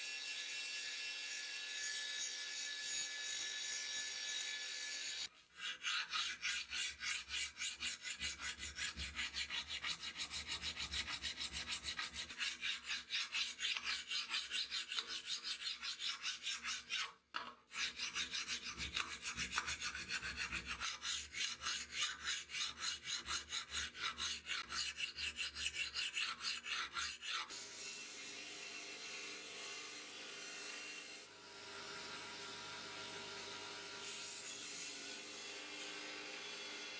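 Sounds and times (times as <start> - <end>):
hand file rasping on steel: 5.0 - 27.6.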